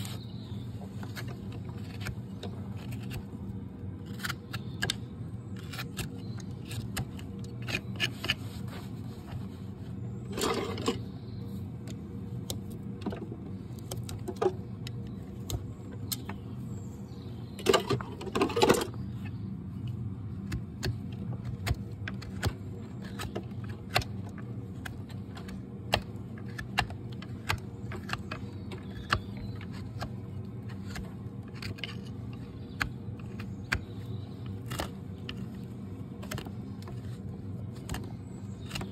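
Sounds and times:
steady low hum: 0.0 - 38.9
hoof knife scraping hoof: 5.5 - 11.1.

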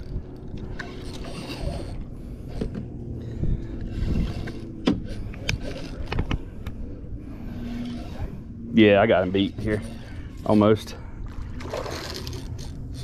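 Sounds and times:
low rumble: 0.0 - 13.0
fish splashing: 11.3 - 12.8.

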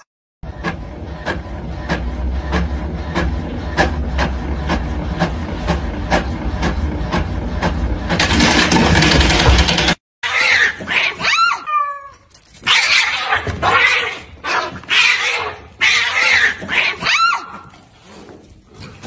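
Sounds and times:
cats yowling: 10.2 - 17.7
cats hissing: 12.7 - 18.2.

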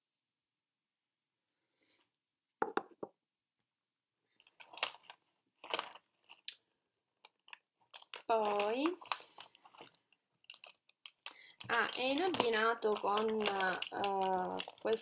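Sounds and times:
plastic cosmetics clicking and rustling: 4.3 - 15.0.

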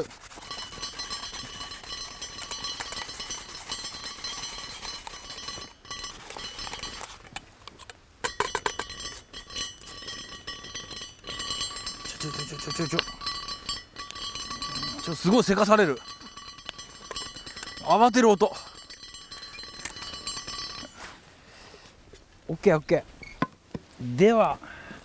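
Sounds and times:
pot lid rattling: 0.4 - 7.3, 8.2 - 20.9.

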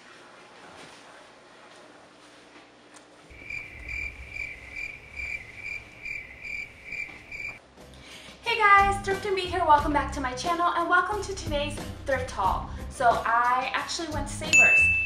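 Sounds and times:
cricket chirping: 3.3 - 7.6.

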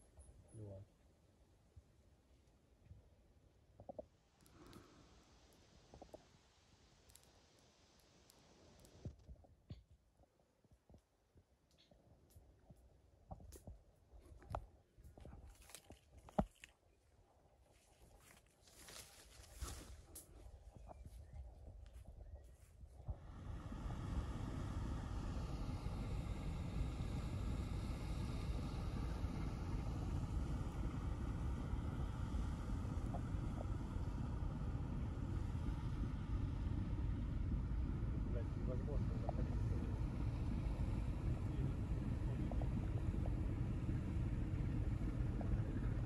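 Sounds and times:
diesel tug boat rumbling: 23.1 - 46.0.

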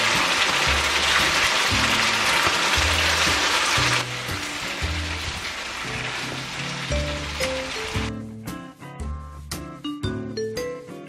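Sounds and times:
pork sizzling in a frying pan: 0.0 - 8.1
background music with bass line: 0.0 - 11.0.

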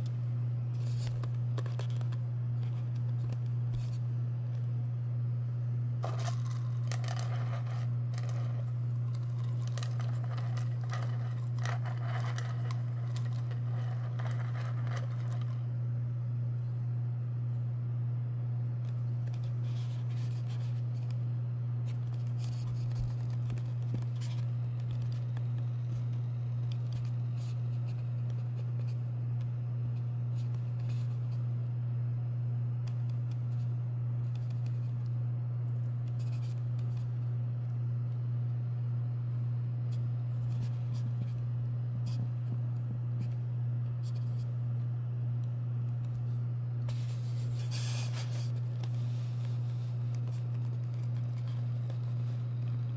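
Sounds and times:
turntable electric hum: 0.0 - 52.9
light clicks and scrapes: 6.0 - 15.6, 46.9 - 52.9.

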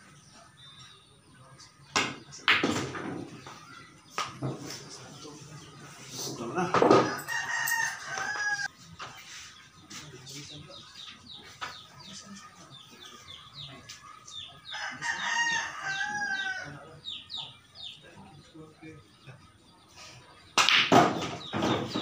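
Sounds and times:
rooster crowing: 7.0 - 8.7, 14.7 - 16.8.

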